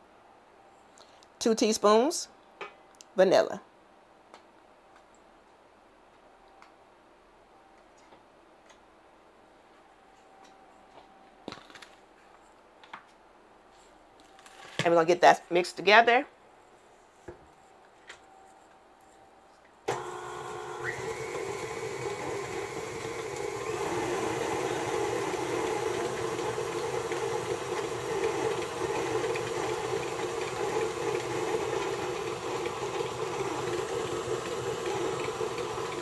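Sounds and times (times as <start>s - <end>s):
stand mixer running: 19.9s - 36.0s.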